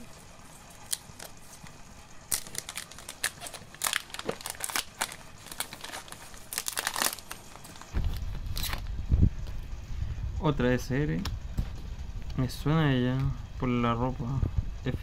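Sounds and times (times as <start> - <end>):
plastic wrapper crinkling and tearing: 0.8 - 8.9
low rumble: 8.0 - 15.0.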